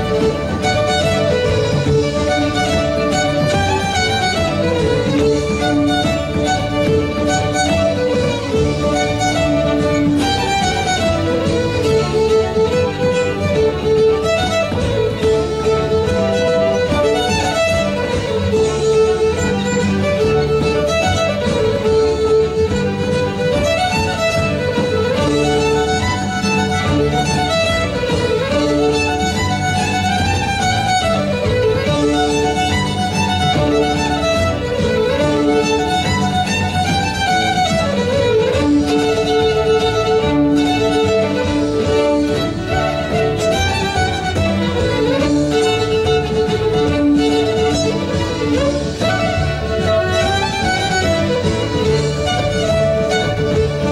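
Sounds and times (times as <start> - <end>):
accompanying instruments: 0.0 - 53.9
fiddle playing a folk tune: 0.0 - 53.9.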